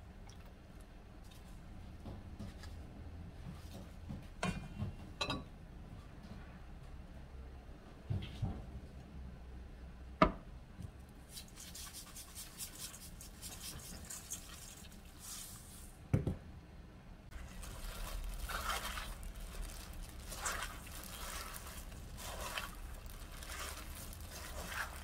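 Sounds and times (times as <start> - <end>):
leaves rustling and squishing: 11.6 - 15.9, 17.3 - 25.0
seeds pattering: 17.3 - 25.0.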